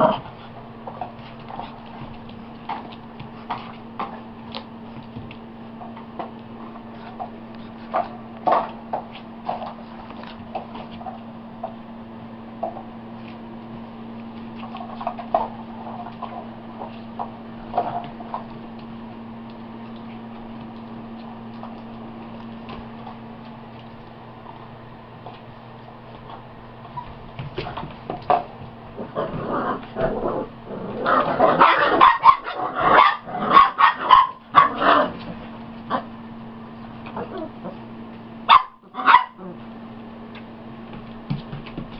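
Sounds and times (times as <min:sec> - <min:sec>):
low electrical hum: 0:00.0 - 0:41.9
puppy claws tapping on mat: 0:00.9 - 0:06.5, 0:40.3 - 0:41.9.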